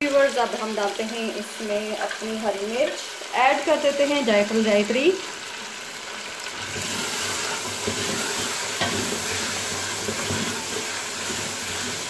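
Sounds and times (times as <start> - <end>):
food sizzling in oil: 0.0 - 12.0
wooden spoon scraping a pot: 6.6 - 12.0.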